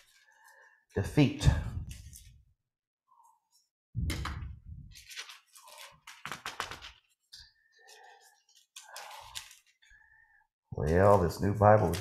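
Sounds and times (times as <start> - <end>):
thin pages rustling: 0.0 - 0.7, 1.8 - 2.6, 3.5 - 10.1, 10.8 - 12.0.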